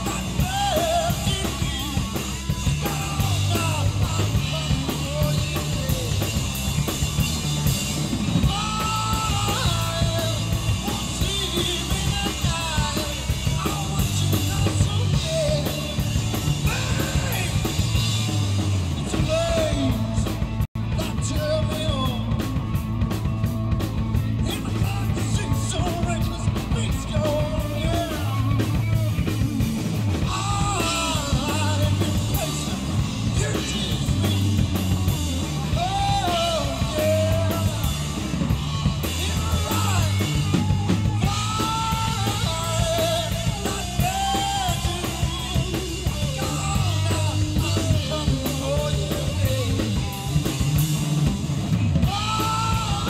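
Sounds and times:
bass guitar: 0:00.0 - 0:53.0
drum kit: 0:00.0 - 0:53.0
electric guitars: 0:00.0 - 0:53.0
person singing: 0:35.6 - 0:38.2, 0:38.9 - 0:50.1, 0:52.0 - 0:53.0.

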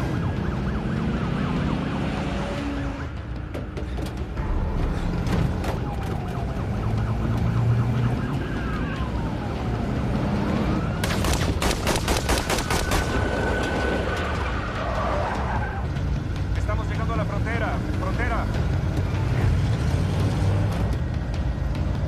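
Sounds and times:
police sirens wailing: 0:00.0 - 0:11.6, 0:12.7 - 0:21.9
vehicle engine and road rumble: 0:00.0 - 0:22.0
rapid rifle fire: 0:11.0 - 0:13.3.

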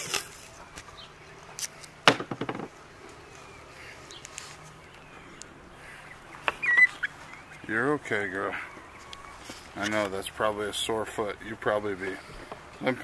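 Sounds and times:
tape tearing off roll: 0:00.0 - 0:00.5.

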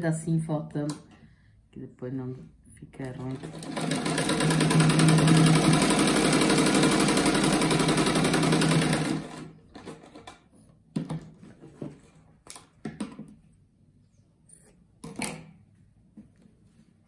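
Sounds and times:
sewing machine stitching: 0:03.2 - 0:10.4.

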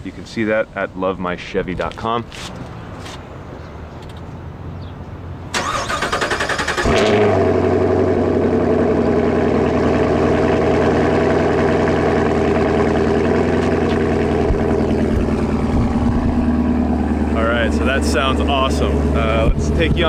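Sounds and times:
starter motor cranking: 0:05.6 - 0:07.0
car engine idling: 0:05.6 - 0:20.0.

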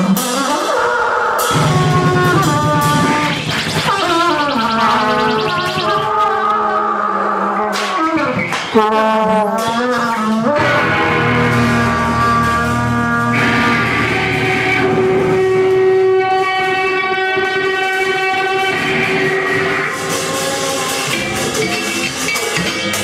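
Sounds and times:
droning amplified tones: 0:01.5 - 0:07.6, 0:10.6 - 0:20.3
wavering pitch glides: 0:01.5 - 0:07.7.

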